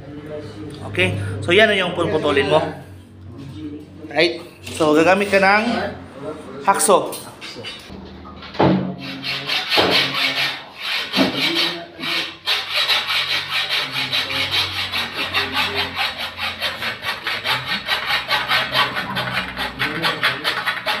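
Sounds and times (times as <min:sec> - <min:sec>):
hacksaw cutting steel: 0:09.0 - 0:21.0.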